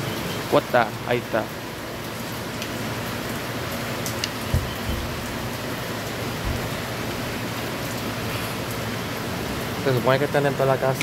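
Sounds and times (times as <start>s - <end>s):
rain falling: 0.0s - 11.0s
soft low thumps: 4.5s - 5.4s, 6.4s - 6.9s.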